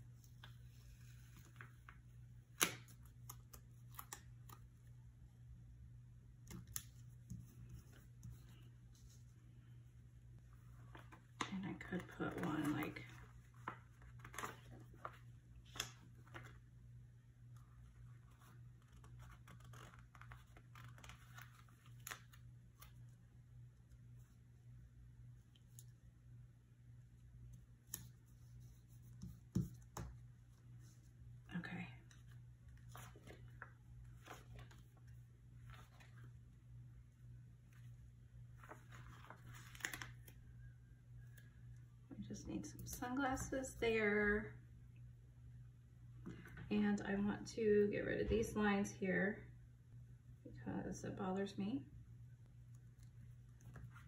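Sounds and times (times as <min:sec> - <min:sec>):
faint low hum: 0:00.0 - 0:54.0
paper rustling: 0:10.5 - 0:16.6, 0:32.7 - 0:36.4, 0:37.6 - 0:40.4.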